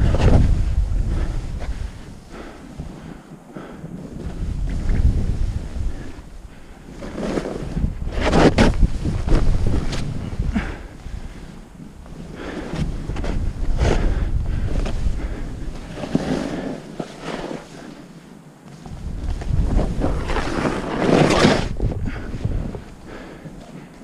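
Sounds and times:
wind rumble on microphone: 0.0 - 17.9, 18.7 - 24.0
snowboard scraping through snow: 3.9 - 24.0.

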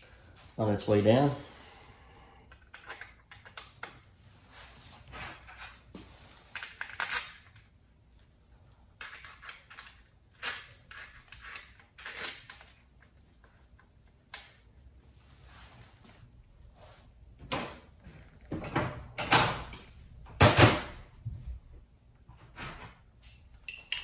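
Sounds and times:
metal tools clicking and clinking: 6.5 - 7.7, 9.0 - 12.8, 23.2 - 24.0.

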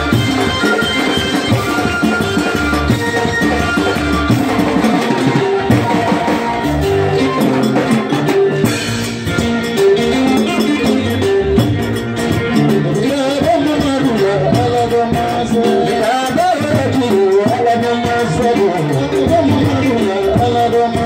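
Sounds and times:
drum kit steady beat: 0.0 - 21.0
live band music: 0.0 - 21.0.

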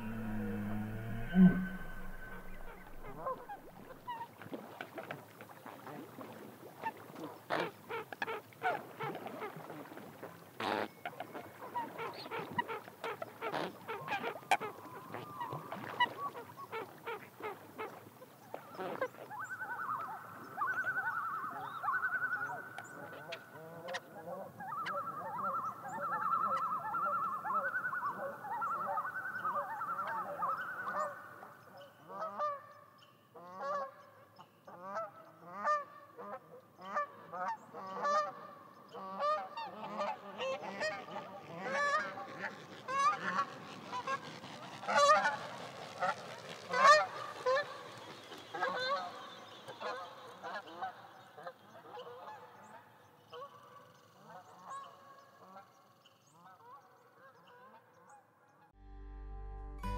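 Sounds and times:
long high drawn-out call: 0.0 - 3.6
geese honking: 0.0 - 3.9.

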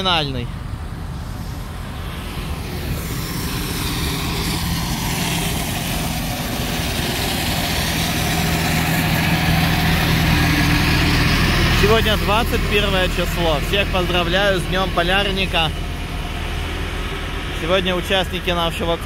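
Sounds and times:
low engine hum: 0.0 - 19.0
rushing noise: 0.0 - 19.0.

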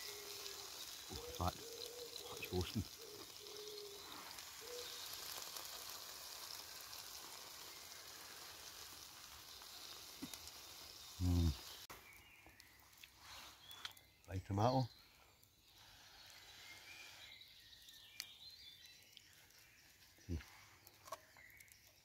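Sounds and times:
food sizzling in a skillet: 0.0 - 13.9.

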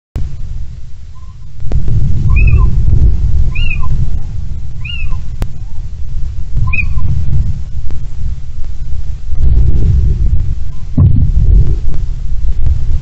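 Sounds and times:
wind rumble on microphone: 0.2 - 13.0
owl mewing calls: 1.1 - 1.6, 2.2 - 2.8, 3.5 - 4.0, 4.7 - 5.8, 6.6 - 7.2.

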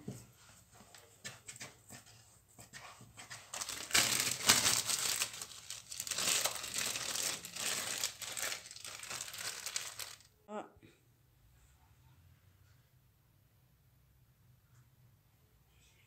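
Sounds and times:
plastic bag crinkling: 3.5 - 10.4.

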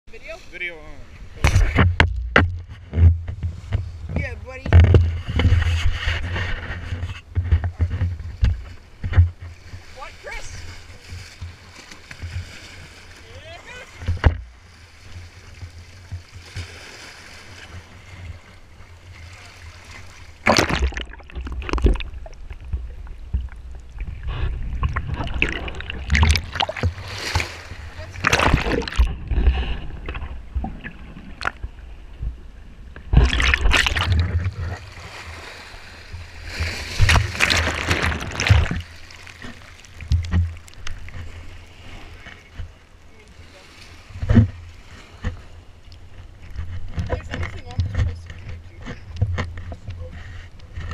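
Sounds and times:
sea water splashing over rocks: 8.2 - 32.3, 33.0 - 45.4
rushing bubbling underwater sound: 19.0 - 41.2.

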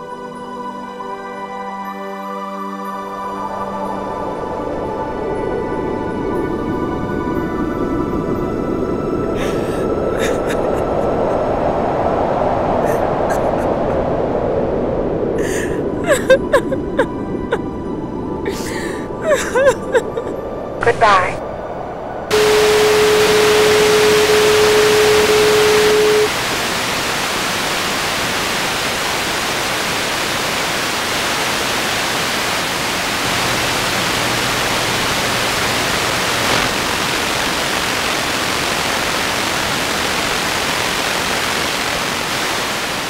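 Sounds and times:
static hiss: 20.8 - 21.3, 22.3 - 43.0
steady single-pitch tone: 22.3 - 26.8.

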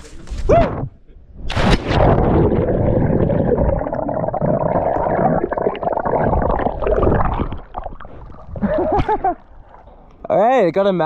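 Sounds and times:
underwater air bubbles gurgling: 2.0 - 10.1.

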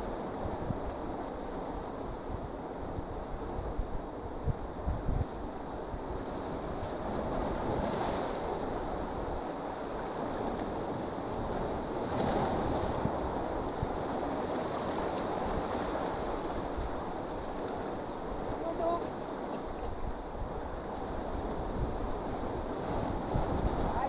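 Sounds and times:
surf breaking over rocks: 6.3 - 24.0.

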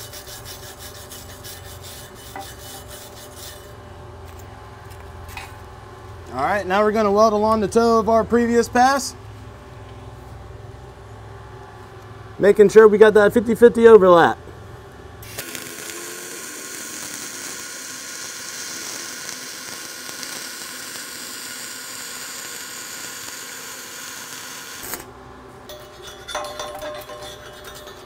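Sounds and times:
welding arc: 15.2 - 25.2
light metallic clinks: 25.7 - 28.0.

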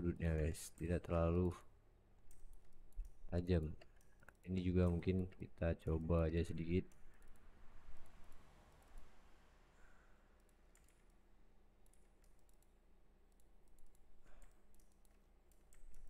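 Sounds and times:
computer mouse clicks: 2.3 - 5.5, 6.9 - 9.2, 10.4 - 16.0
keyboard keys clicking: 10.4 - 11.2, 11.8 - 16.0.

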